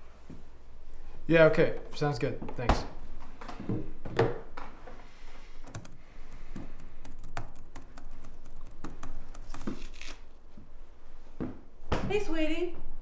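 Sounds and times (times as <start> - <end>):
laptop keyboard typing: 5.6 - 9.8.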